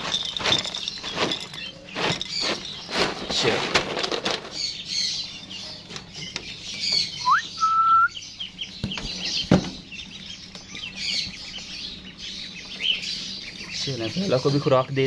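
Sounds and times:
birds chirping and chattering: 0:00.0 - 0:15.0
bird whistle: 0:07.2 - 0:08.3.

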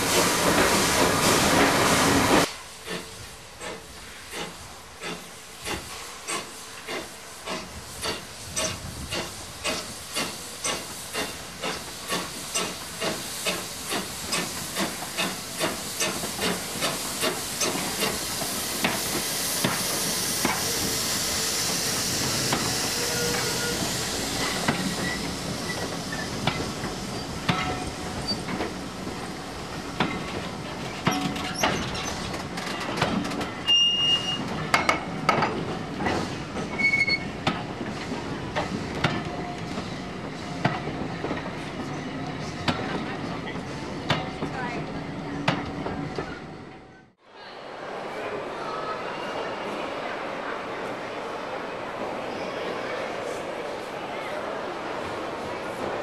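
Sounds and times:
steam hissing: 0:00.0 - 0:32.2
steam locomotive exhaust beats: 0:02.4 - 0:30.4
high wheel squeals: 0:20.4 - 0:26.3, 0:33.6 - 0:34.5, 0:36.7 - 0:37.3
wheels clicking over rail joints: 0:30.0 - 0:33.8.

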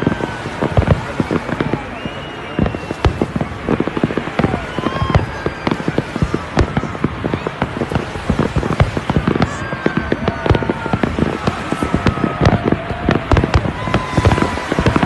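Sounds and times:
fireworks barrage: 0:00.0 - 0:15.0.

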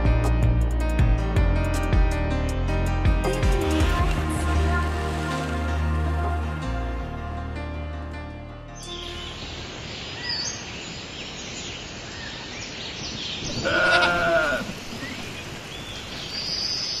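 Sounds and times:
farm animal bleating: 0:13.5 - 0:14.7.

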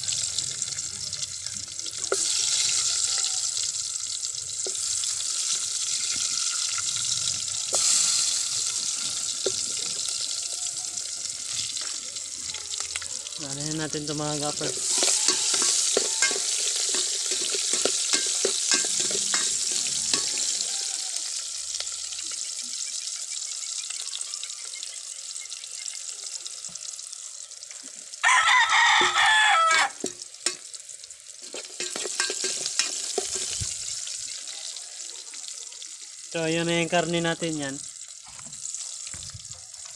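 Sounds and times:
garlic and onion sizzling in oil: 0:00.0 - 0:39.9
rooster crowing: 0:02.2 - 0:03.8, 0:07.5 - 0:11.5, 0:14.8 - 0:17.0, 0:18.8 - 0:21.7, 0:28.2 - 0:30.0
metal spoon scraping pot: 0:14.7 - 0:20.6, 0:31.4 - 0:34.0.

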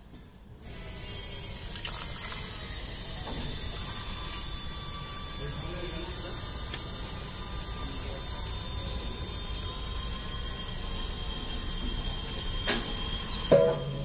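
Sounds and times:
small electric motor whine: 0:00.6 - 0:14.0
water jet splashing into tub: 0:01.6 - 0:04.5.

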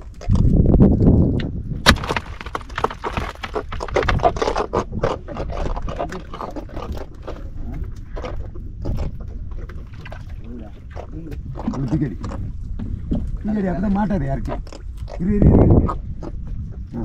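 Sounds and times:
sharp crack: 0:01.8 - 0:04.2
knocking and scraping in a boat: 0:02.0 - 0:14.7.

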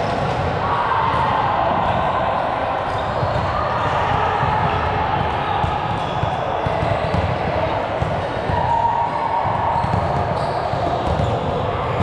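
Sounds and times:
shoe squeal: 0:02.8 - 0:04.0, 0:09.6 - 0:12.0.

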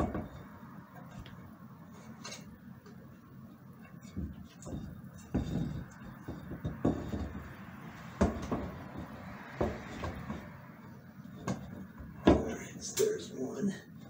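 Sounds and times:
metal light fixture clunking and scraping: 0:02.0 - 0:02.5, 0:03.8 - 0:12.6.

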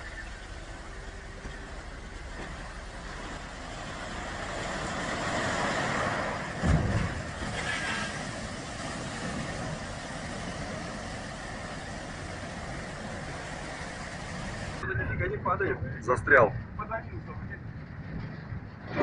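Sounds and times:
gravel sliding: 0:00.0 - 0:14.8
water churning and pouring: 0:00.0 - 0:14.8
water rushing: 0:00.0 - 0:15.2.

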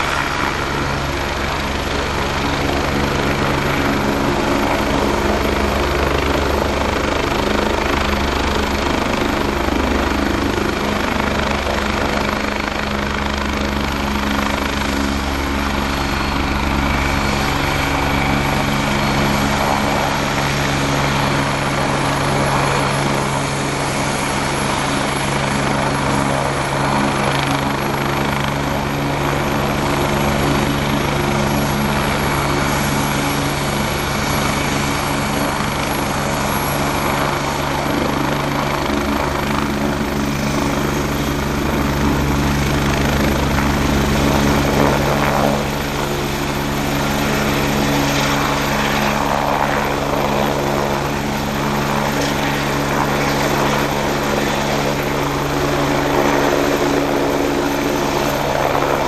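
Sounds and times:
helicopter rotor and turbine drone: 0:00.0 - 0:59.0.

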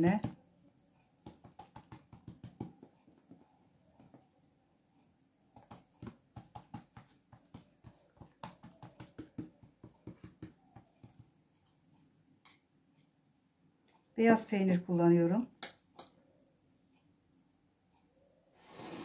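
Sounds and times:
hands pressing dough on table: 0:01.2 - 0:04.3, 0:05.5 - 0:11.4.

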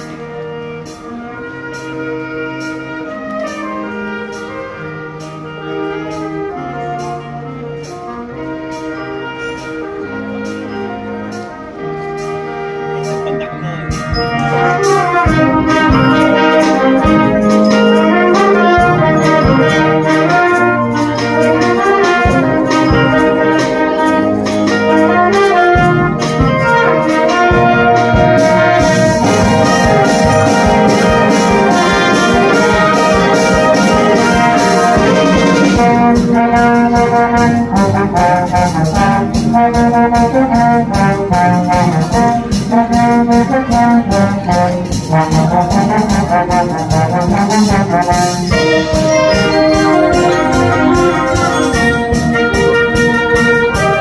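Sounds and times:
brass band playing: 0:00.0 - 0:54.0
cymbals ringing: 0:13.1 - 0:27.8, 0:47.5 - 0:54.0
steady drum beat: 0:13.2 - 0:54.0.

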